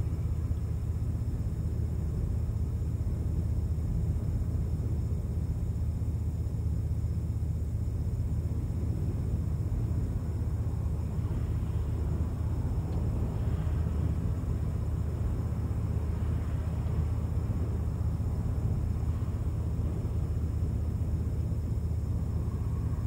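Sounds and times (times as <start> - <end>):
wind noise on microphone: 7.8 - 23.0.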